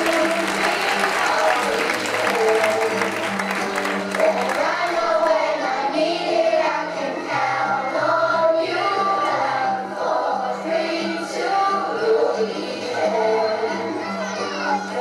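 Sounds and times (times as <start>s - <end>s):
children's choir singing: 0.0s - 15.0s.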